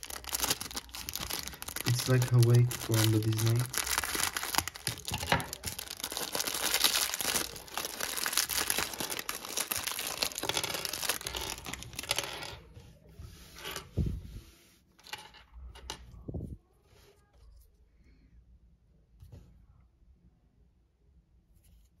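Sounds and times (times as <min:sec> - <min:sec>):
plastic bag crinkling: 0:00.0 - 0:12.3
plastic pieces clicking on table: 0:00.6 - 0:12.5.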